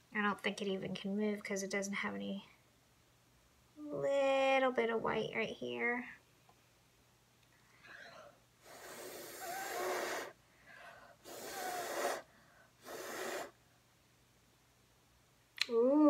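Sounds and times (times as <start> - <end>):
person blowing puffs of breath: 8.6 - 13.6.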